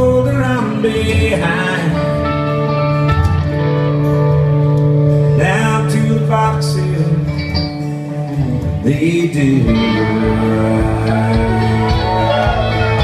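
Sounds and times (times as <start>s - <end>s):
strummed guitars: 0.0s - 13.0s.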